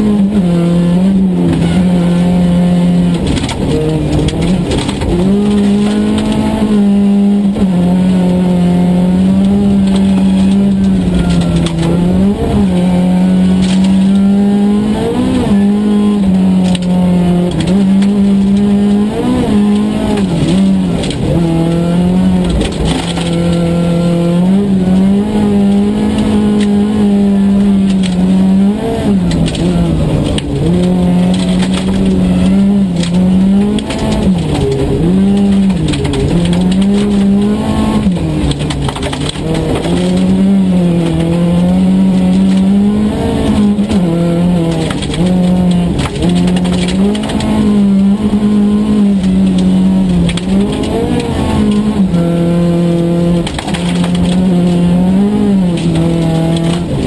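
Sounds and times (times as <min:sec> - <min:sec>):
gravel and road noise: 0:00.0 - 0:57.0
rally car engine at high revs: 0:00.0 - 0:57.0.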